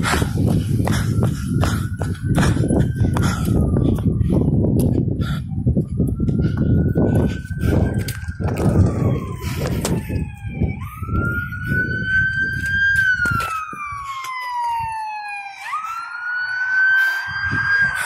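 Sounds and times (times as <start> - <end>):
rhythmic low thumps: 0.0 - 13.2
emergency siren wailing: 0.0 - 18.0.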